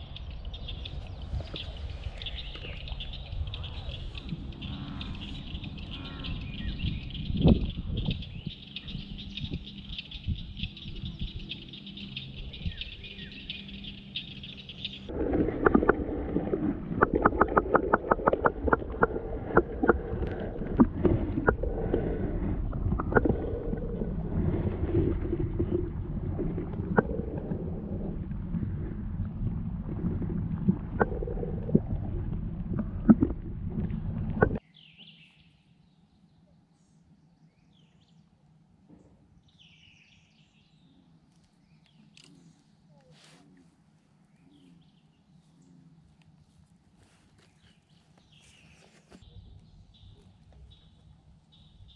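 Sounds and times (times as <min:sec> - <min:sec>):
water sloshing underwater: 0:00.0 - 0:10.7, 0:14.3 - 0:34.6
sharp underwater clicks: 0:14.9 - 0:22.0, 0:22.7 - 0:23.9, 0:24.9 - 0:27.6, 0:29.9 - 0:34.6.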